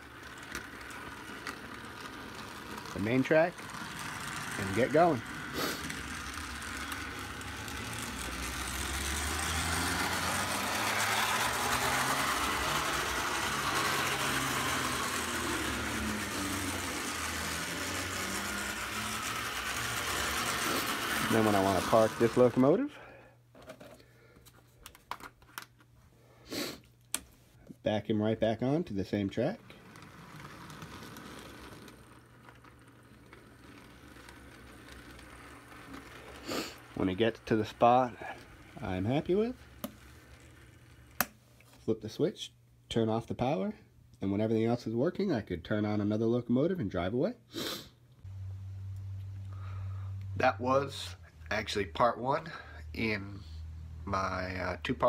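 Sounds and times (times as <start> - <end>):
wheels clicking on rails: 0.0 - 22.8, 28.2 - 41.3
model train motor hum: 0.0 - 23.1, 29.1 - 41.3, 48.9 - 55.0.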